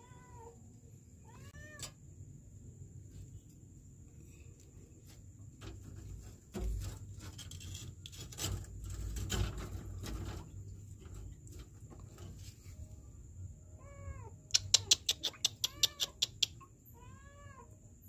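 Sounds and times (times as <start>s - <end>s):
rubbing and scraping: 5.0s - 12.9s.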